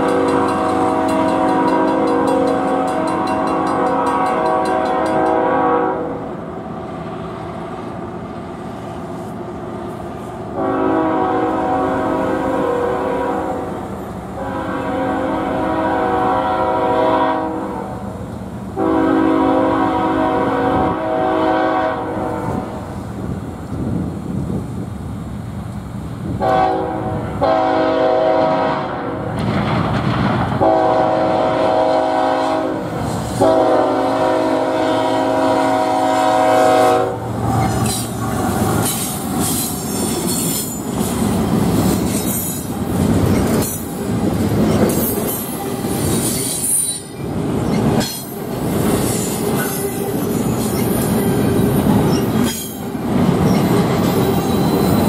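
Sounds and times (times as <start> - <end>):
wheels clicking over rail joints: 0.0 - 5.4, 29.3 - 30.6, 37.4 - 55.0
locomotive air horn blasts: 0.0 - 6.3, 10.6 - 13.8, 14.4 - 18.0, 18.8 - 22.7, 26.4 - 29.3, 30.6 - 37.3
train wheels rumbling on rails: 0.0 - 55.0
high wheel squeal: 38.8 - 41.2, 44.6 - 48.4, 49.0 - 55.0.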